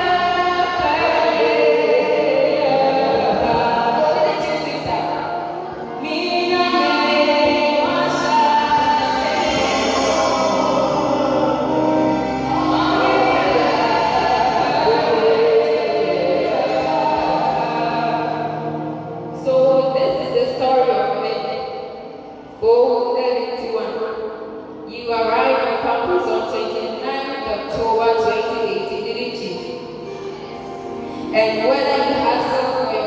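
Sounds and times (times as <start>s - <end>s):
woman singing slow melody: 0.0s - 18.5s.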